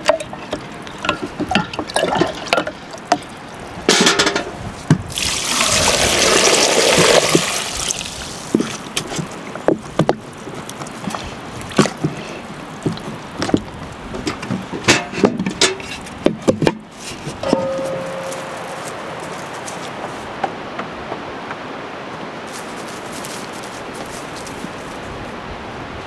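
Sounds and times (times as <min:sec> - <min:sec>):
pots and utensils clinking: 0:00.0 - 0:03.3, 0:03.9 - 0:04.6, 0:14.8 - 0:16.0, 0:17.4 - 0:19.2
water pouring and splashing: 0:00.0 - 0:20.1.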